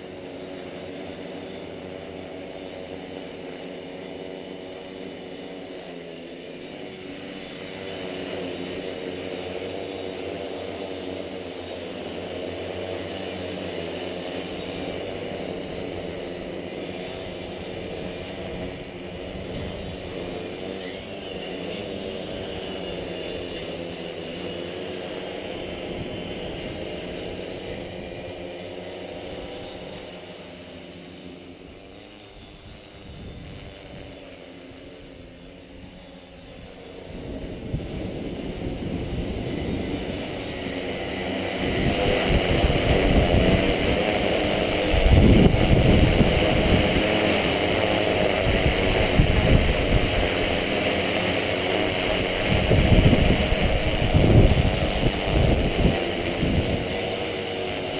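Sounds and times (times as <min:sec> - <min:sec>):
drone propellers humming: 0:00.0 - 0:57.9
wind noise on microphone: 0:17.9 - 0:20.3, 0:32.4 - 0:34.1, 0:36.5 - 0:50.7, 0:52.0 - 0:57.2.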